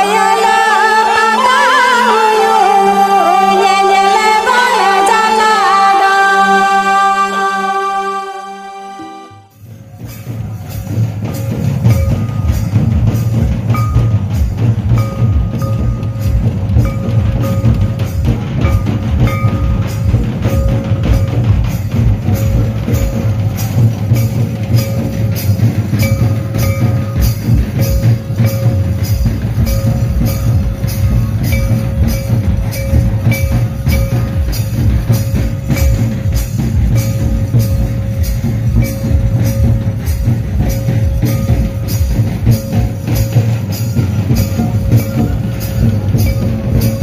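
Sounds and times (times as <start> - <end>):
steady high held note: 0.0 - 47.0
hand drums beating: 9.6 - 47.0.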